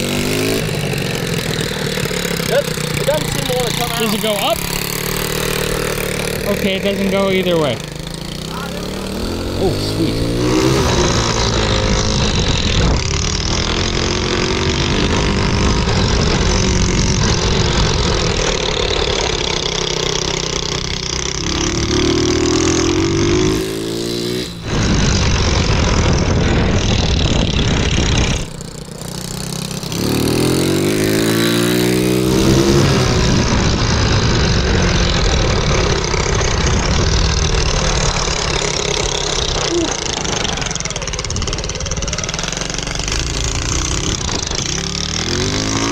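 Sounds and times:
small motorcycle engine revving: 0.0 - 45.9
wind rushing over microphone: 9.1 - 19.4, 22.6 - 45.9.

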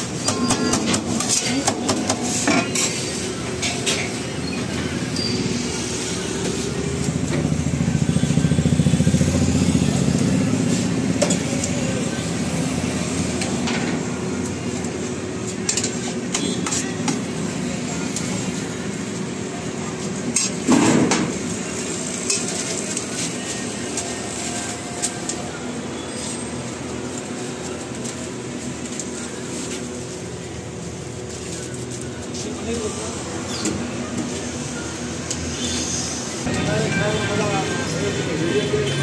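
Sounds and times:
metal utensils clinking on trays: 0.3 - 4.7, 20.3 - 25.4.

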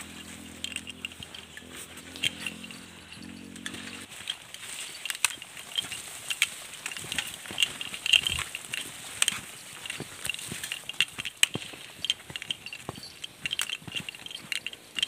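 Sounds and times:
footsteps on dirt trail: 0.0 - 15.0
leaves and branches brushing: 0.0 - 15.0.

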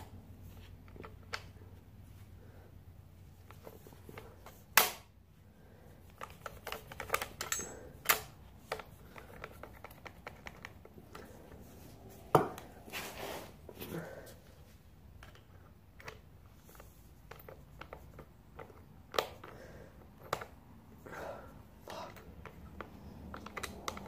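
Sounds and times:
hand tool clinking on metal: 7.4 - 7.9.

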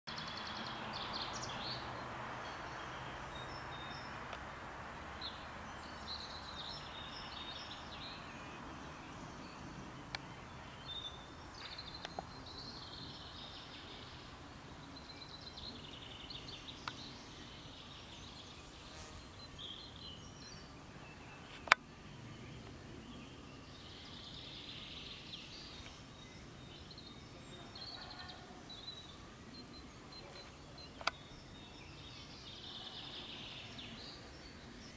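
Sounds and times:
steady background hiss: 0.1 - 34.9
sharp clicks: 30.2 - 31.2.

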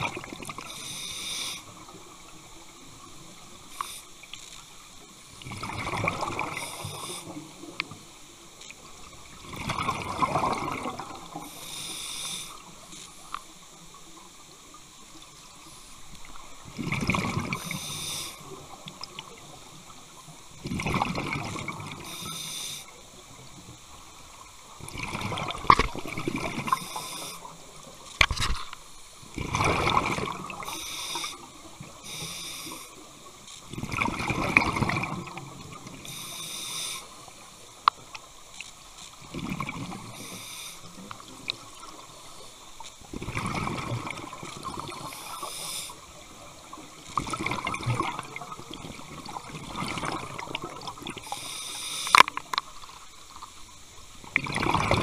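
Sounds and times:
exhaled bubbles underwater: 0.0 - 3.5, 5.3 - 8.0, 8.8 - 11.6, 16.2 - 19.9, 20.5 - 22.3, 24.4 - 27.9, 29.2 - 36.2, 39.2 - 42.2, 43.0 - 51.5, 54.2 - 55.0
regulator inhalation hiss: 0.6 - 2.0, 3.3 - 4.6, 6.4 - 7.8, 11.3 - 13.3, 17.5 - 18.6, 22.0 - 23.1, 26.7 - 27.7, 30.6 - 33.2, 36.0 - 37.7, 40.1 - 41.0, 44.9 - 46.2, 51.2 - 52.4.

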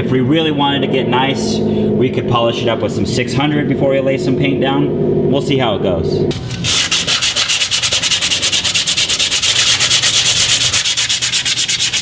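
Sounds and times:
sandpaper scratching on metal: 6.4 - 12.0.

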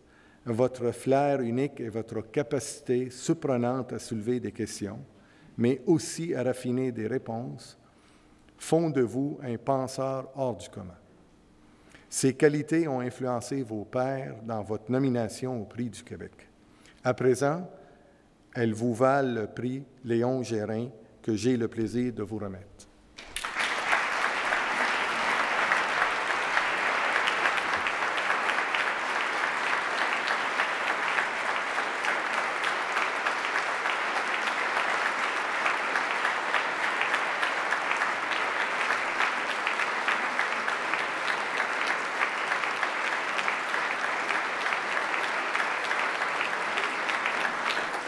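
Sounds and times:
audience applauding: 23.2 - 48.0.

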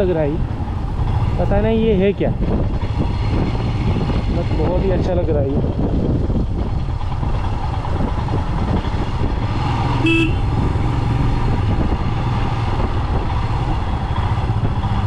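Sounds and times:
motorcycle engine running: 0.0 - 15.0
wind rush on microphone: 0.0 - 15.0
horn beep: 10.0 - 10.5.

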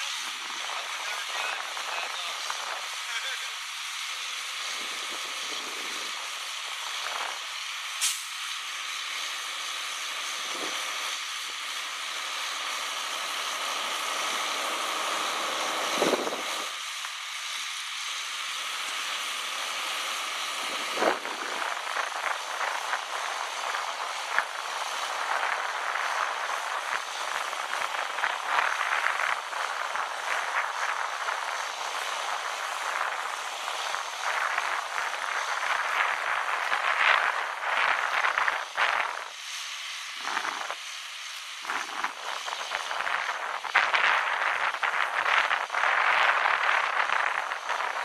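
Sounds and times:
hydraulic boom hissing: 8.0 - 8.4.

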